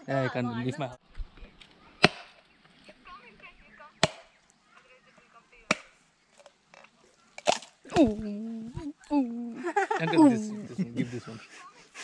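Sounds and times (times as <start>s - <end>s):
machete chopping coconut husk: 2.0s - 2.4s, 4.0s - 4.4s, 5.7s - 6.0s, 7.4s - 8.2s.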